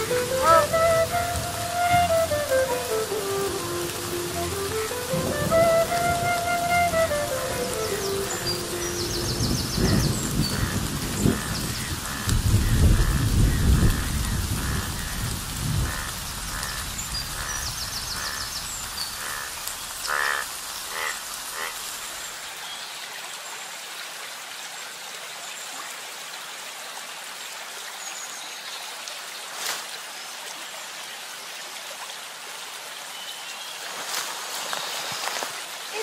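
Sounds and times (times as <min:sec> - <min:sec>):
rain on foliage: 0:00.0 - 0:36.0
frogs croaking: 0:08.3 - 0:22.3.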